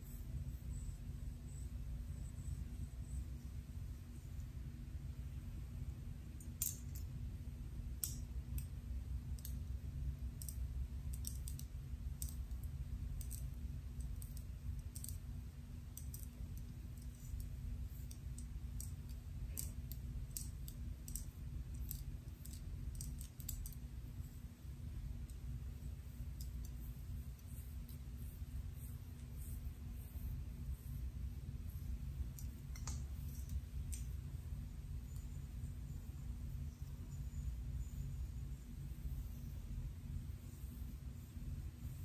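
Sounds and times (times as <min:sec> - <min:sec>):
steady low hum: 0:00.0 - 0:42.0
fingernails scratching hair: 0:26.0 - 0:34.2.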